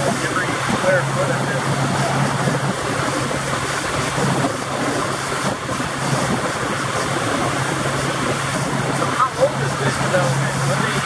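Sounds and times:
boat motor humming: 0:00.0 - 0:11.0
water rushing: 0:00.0 - 0:11.0
wind noise: 0:00.0 - 0:11.0.

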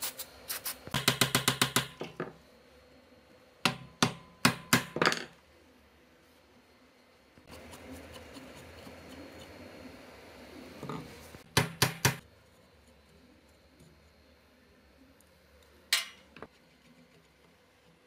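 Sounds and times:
hammer striking chisel on metal: 0:01.0 - 0:02.1, 0:03.7 - 0:05.2.

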